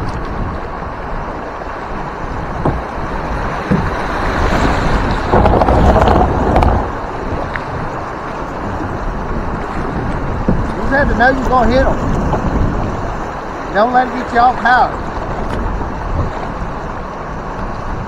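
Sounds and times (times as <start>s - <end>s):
river water rushing: 0.0s - 18.0s
wind buffeting microphone: 0.0s - 18.0s.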